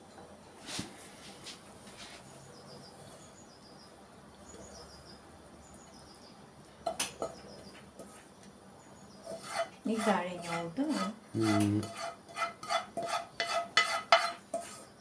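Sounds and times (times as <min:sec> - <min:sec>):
small birds chirping: 0:02.2 - 0:09.4
wooden spatula scraping pan: 0:09.2 - 0:15.0.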